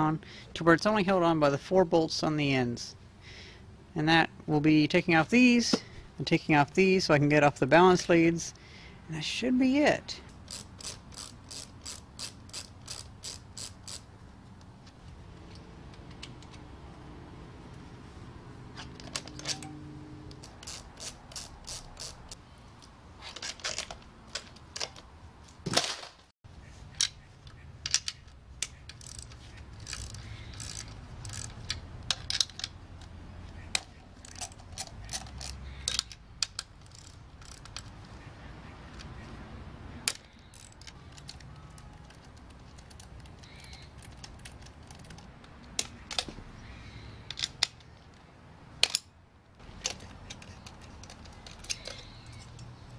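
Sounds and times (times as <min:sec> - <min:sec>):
plastic and metal parts clicking: 0:18.8 - 0:22.2, 0:22.8 - 0:25.1, 0:27.0 - 0:38.2, 0:40.0 - 0:46.4, 0:47.2 - 0:52.8.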